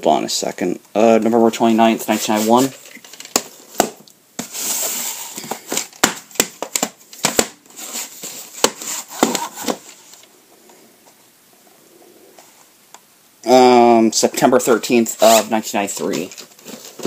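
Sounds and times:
cardboard sleeve scraping: 2.0s - 2.8s, 4.4s - 5.4s, 7.7s - 10.1s, 15.2s - 17.0s.

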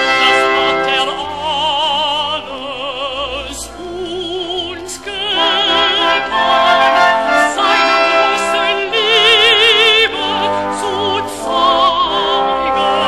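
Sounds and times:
operatic singing with vibrato: 0.0s - 13.0s
orchestral accompaniment: 0.0s - 13.0s.

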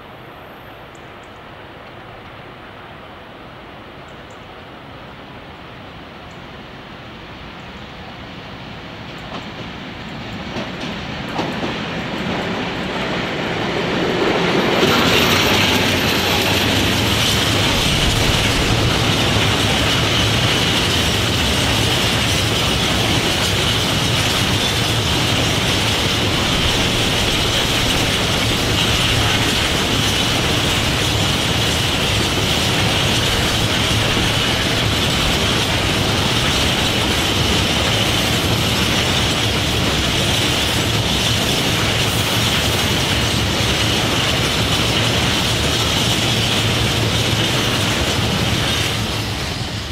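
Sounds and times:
wheels clickety-clack on rail joints: 8.6s - 49.9s
wheel-on-rail noise: 9.2s - 49.9s
locomotive engine: 11.4s - 49.9s.

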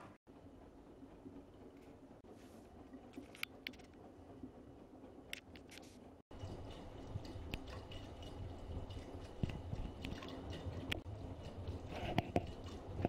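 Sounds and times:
water sloshing in washing machine: 6.2s - 13.0s
clicks and splashes: 6.4s - 13.0s.

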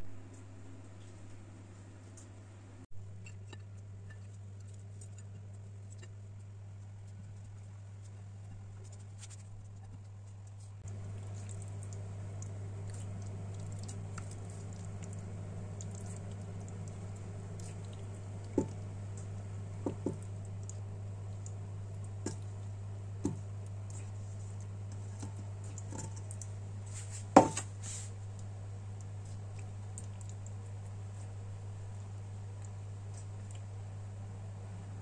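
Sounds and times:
steady low hum: 0.0s - 35.0s
food squishing onto a plate: 7.1s - 33.7s.

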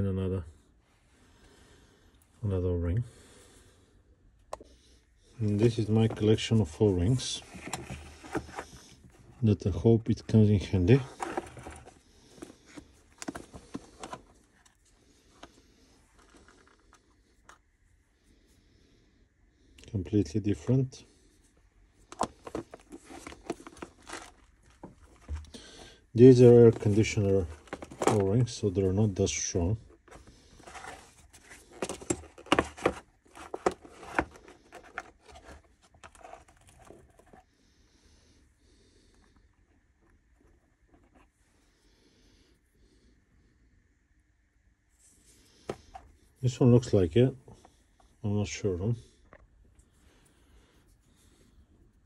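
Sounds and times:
faint rustling: 5.2s - 17.6s, 21.0s - 37.5s
fingers sorting rubber rings: 26.2s - 37.3s.

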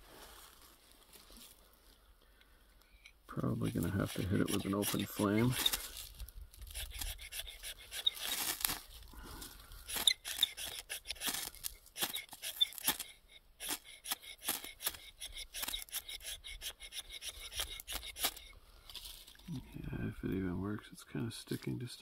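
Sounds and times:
ferro rod scraped with striker: 3.6s - 9.0s, 9.8s - 18.5s.

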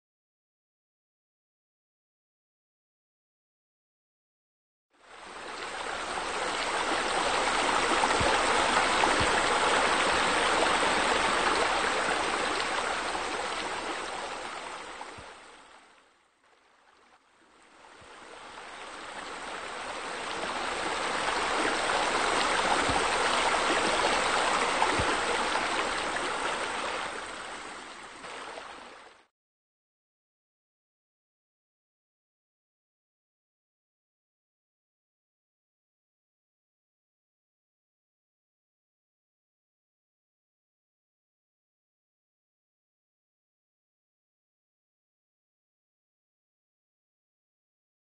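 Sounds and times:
running water rushing: 5.0s - 29.3s.

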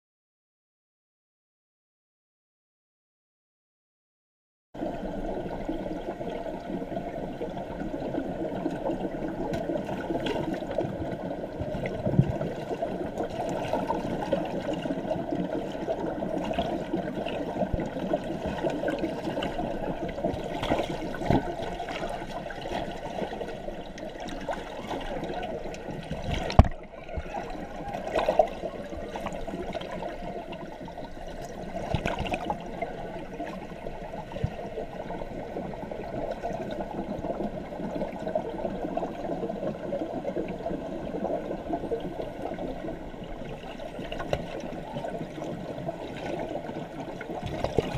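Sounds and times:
muffled underwater water churning: 4.8s - 47.9s.

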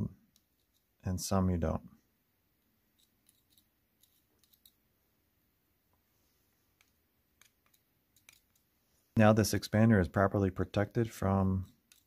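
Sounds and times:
faint metal clicks and taps: 0.2s - 0.9s, 2.6s - 4.8s, 6.7s - 8.7s, 11.6s - 12.0s.

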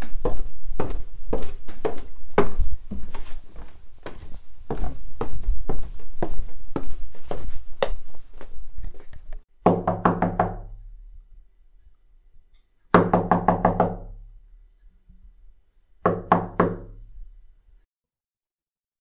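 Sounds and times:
knocking on wooden door: 9.7s - 10.7s, 13.0s - 14.1s.

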